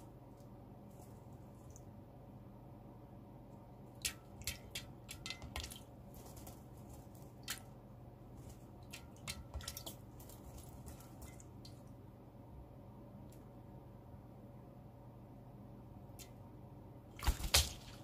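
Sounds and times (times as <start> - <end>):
bird splashing in water: 4.0 - 7.7, 8.4 - 11.8, 17.2 - 18.0.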